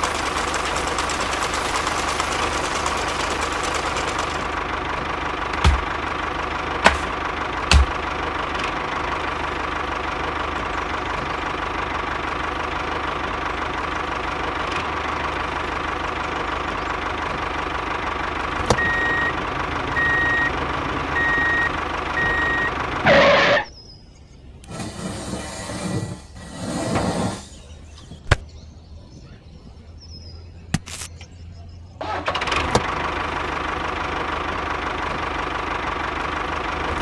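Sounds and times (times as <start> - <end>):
tractor engine running: 0.0 - 26.6, 30.3 - 37.0
reversing beeper: 18.8 - 23.7.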